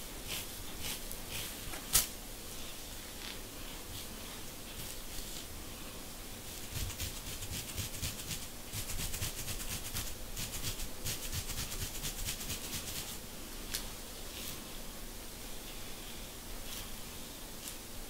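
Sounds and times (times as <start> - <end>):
rapid scratching on scalp: 0.2 - 1.7, 2.6 - 5.5, 6.5 - 13.2.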